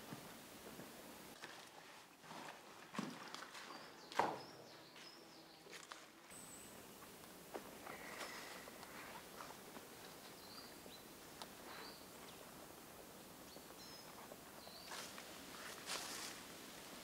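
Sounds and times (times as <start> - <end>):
footsteps rustling through leaves: 14.8 - 17.0.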